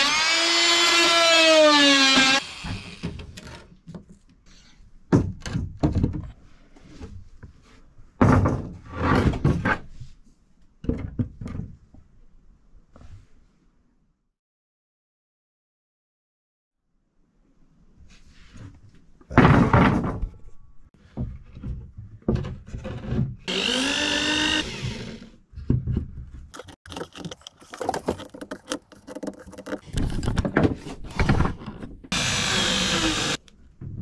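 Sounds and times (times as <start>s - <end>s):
handheld power tool running: 0.0s - 3.1s, 23.5s - 25.3s, 32.1s - 33.4s
knocks and thumps of timber: 5.1s - 6.4s, 8.2s - 9.8s, 19.3s - 20.4s, 21.0s - 23.4s.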